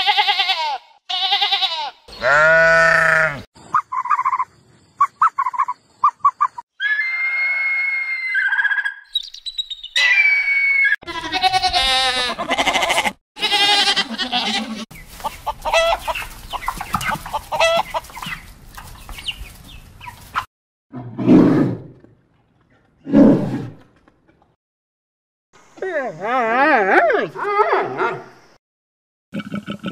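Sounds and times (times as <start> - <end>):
hens clucking and squawking: 11.8 - 20.5.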